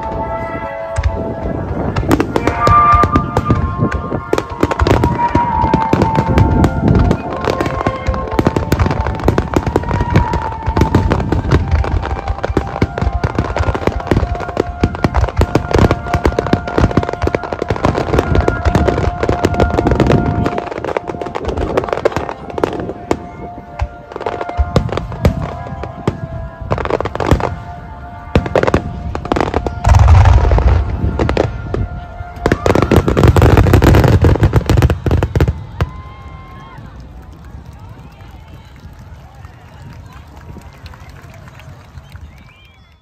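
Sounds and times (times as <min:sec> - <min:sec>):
music with long held notes: 0:00.0 - 0:35.5
fireworks bursting and crackling: 0:00.0 - 0:43.0.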